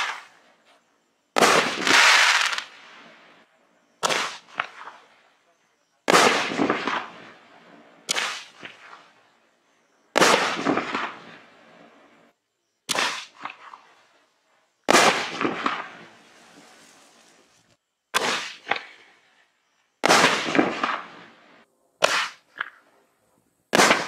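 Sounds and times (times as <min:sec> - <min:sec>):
firework cake bangs: 0:01.4 - 0:02.8, 0:04.0 - 0:05.1, 0:06.0 - 0:07.4, 0:08.0 - 0:09.1, 0:10.1 - 0:11.4, 0:12.8 - 0:13.9, 0:14.9 - 0:16.8, 0:18.1 - 0:19.0, 0:20.0 - 0:21.3, 0:22.0 - 0:22.8, 0:23.7 - 0:24.0.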